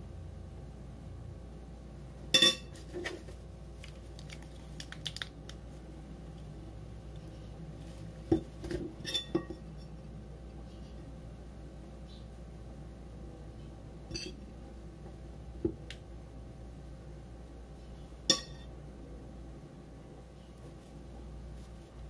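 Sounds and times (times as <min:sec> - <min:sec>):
utensils clinking against dishes: 0:09.0 - 0:10.0, 0:14.1 - 0:14.4.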